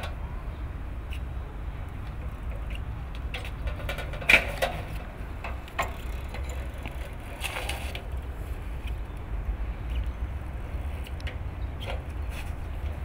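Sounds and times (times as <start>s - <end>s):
bicycle clicks and knocks: 1.9s - 9.3s, 9.9s - 13.0s.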